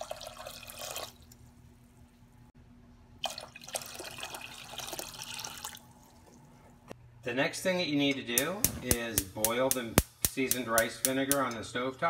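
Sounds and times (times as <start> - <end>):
water pouring into a metal pot: 0.0 - 1.4, 3.2 - 5.9.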